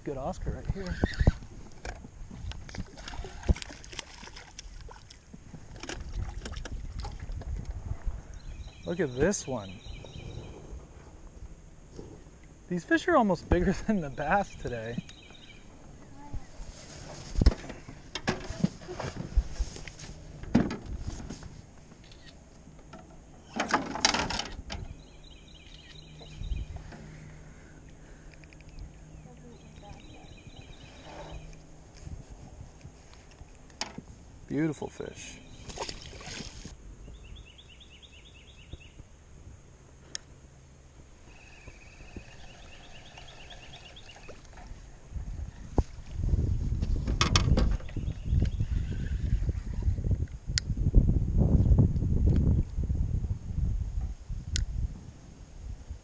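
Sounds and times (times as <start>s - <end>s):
wind and water rumble: 0.0s - 56.0s
rustling: 16.4s - 22.3s.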